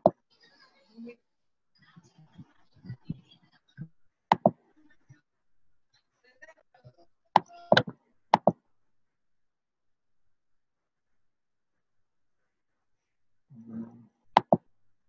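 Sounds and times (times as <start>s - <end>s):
sharp knocks: 14.4s - 14.6s.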